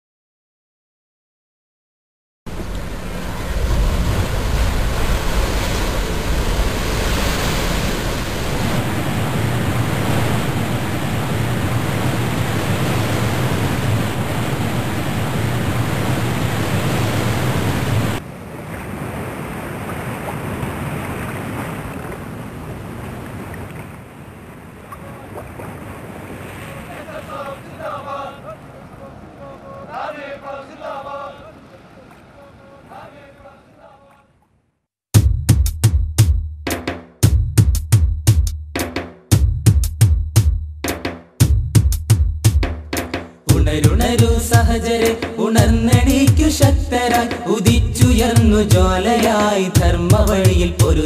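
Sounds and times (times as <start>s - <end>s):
wind buffeting microphone: 2.5s - 18.2s
surf washing up beach: 2.5s - 33.9s, 43.5s - 51.0s.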